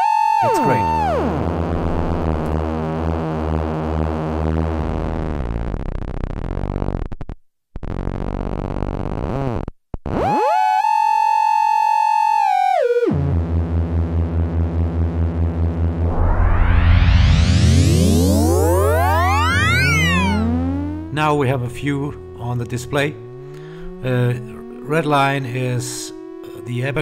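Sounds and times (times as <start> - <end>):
buzzy synth tones sliding in pitch: 0.4 - 5.1, 15.8 - 27.0.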